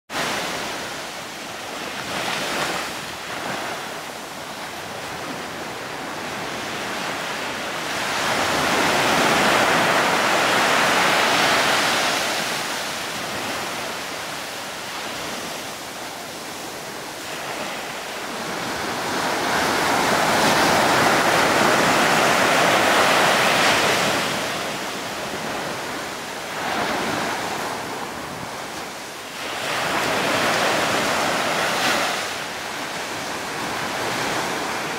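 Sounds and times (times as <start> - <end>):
sea waves washing onto shore: 0.1 - 34.9.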